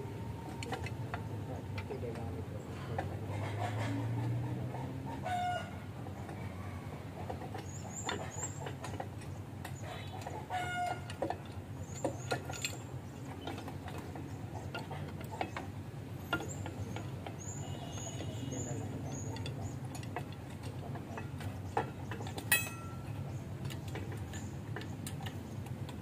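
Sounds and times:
chicken clucking: 0:00.4 - 0:12.2
small birds chirping: 0:06.0 - 0:10.4, 0:11.5 - 0:25.9
hand tools clicking on metal: 0:07.2 - 0:26.0.

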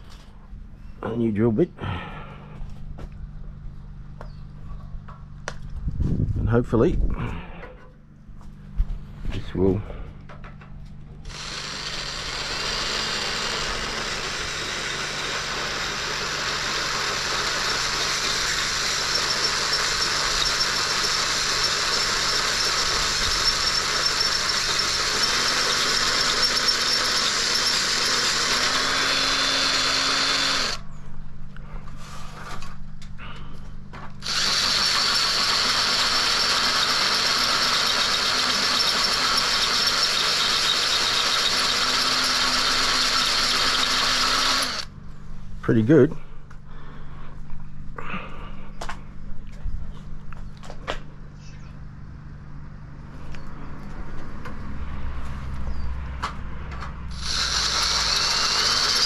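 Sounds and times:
power drill boring a hole: 0:11.2 - 0:30.8, 0:34.2 - 0:44.9, 0:57.1 - 0:59.0.

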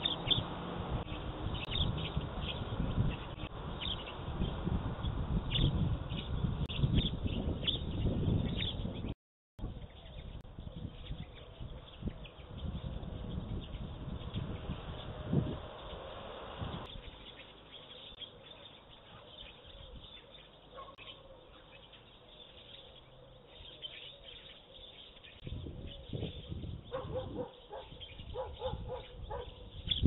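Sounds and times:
small birds chirping: 0:00.0 - 0:30.0
dog barking: 0:20.7 - 0:21.2, 0:26.9 - 0:29.6.

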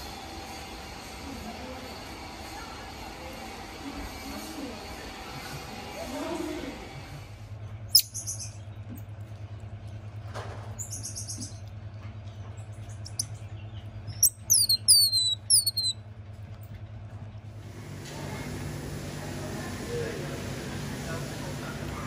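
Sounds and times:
steady low hum: 0:05.1 - 0:22.0
monkey high-pitched calls: 0:07.9 - 0:08.6, 0:10.8 - 0:11.6, 0:14.1 - 0:16.0
sharp falling chirps: 0:14.1 - 0:16.0.

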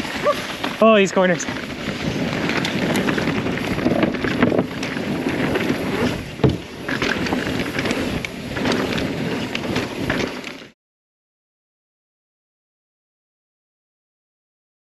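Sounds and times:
wind rushing over microphone: 0:00.0 - 0:10.3
bike rattling clicks: 0:00.0 - 0:10.7
tyres on dirt: 0:00.0 - 0:10.7.

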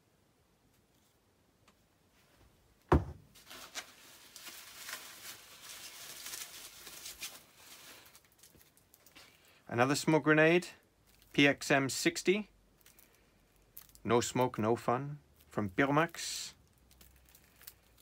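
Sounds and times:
sharp thump: 0:02.9 - 0:03.3
bubble wrap crinkling: 0:03.3 - 0:09.6, 0:11.0 - 0:11.4, 0:12.6 - 0:14.6, 0:15.2 - 0:18.0.

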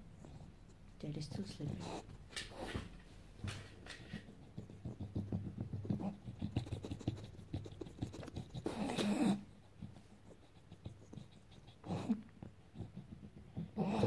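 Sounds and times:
dog snuffling: 0:00.2 - 0:14.0
dog breathy huff: 0:05.9 - 0:09.5.

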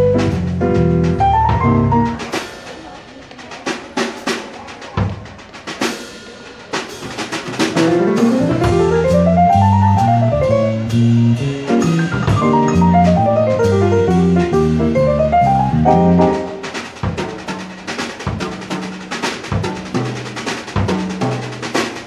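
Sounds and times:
jazz piano runs: 0:00.0 - 0:02.4, 0:07.6 - 0:21.6
drum kit stick hits and cymbals: 0:00.0 - 0:22.0
walking bass line: 0:07.9 - 0:16.5.

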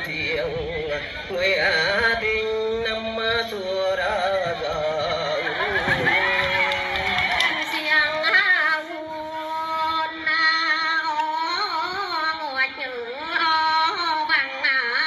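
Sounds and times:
woman singing slow song: 0:07.2 - 0:15.0.

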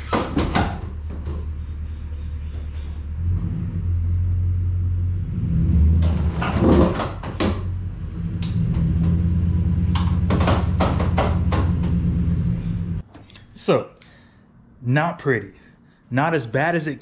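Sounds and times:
trailer suspension popping and creaking: 0:00.0 - 0:01.8, 0:05.9 - 0:13.0
vehicle engine hum: 0:00.0 - 0:13.0.

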